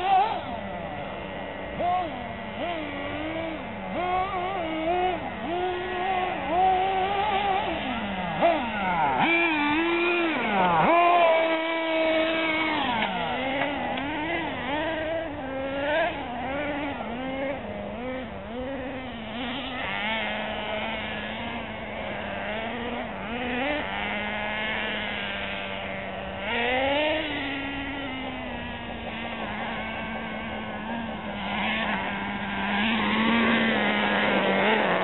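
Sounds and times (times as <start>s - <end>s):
small engines of rc cars racing: 0.0s - 35.0s.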